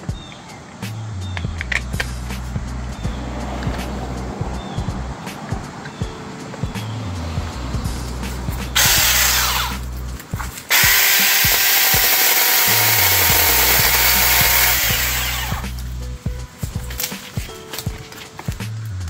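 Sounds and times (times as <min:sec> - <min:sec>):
electric chainsaw running: 0:08.8 - 0:09.9, 0:10.5 - 0:15.8.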